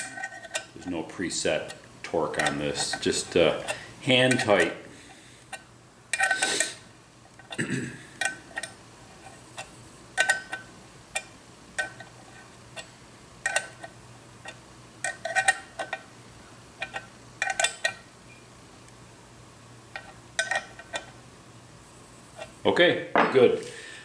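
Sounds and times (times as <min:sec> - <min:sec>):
wrench clinking on metal: 0:02.3 - 0:03.7, 0:10.2 - 0:10.6, 0:16.8 - 0:18.0, 0:20.0 - 0:21.0.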